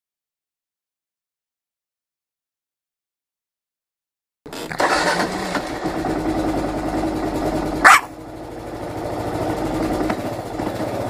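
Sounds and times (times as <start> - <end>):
motorcycle engine idling: 4.5 - 11.0
small dog yap: 7.8 - 8.1.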